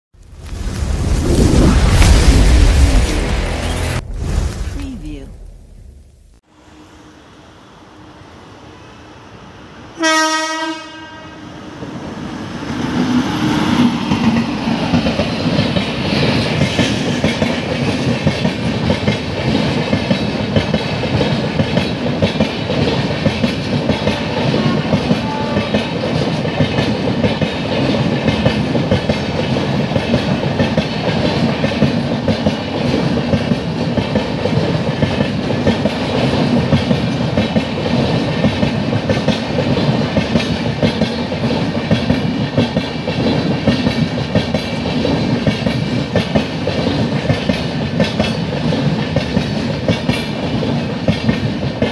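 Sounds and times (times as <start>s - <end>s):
train wheels rumbling over rails: 9.9s - 51.9s
locomotive horn blast: 10.0s - 11.5s.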